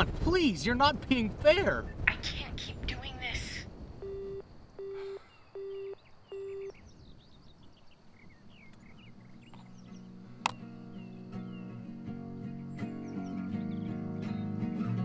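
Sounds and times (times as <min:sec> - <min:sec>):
phone beeps: 0:04.0 - 0:06.8
faint bird chirps: 0:04.0 - 0:11.9.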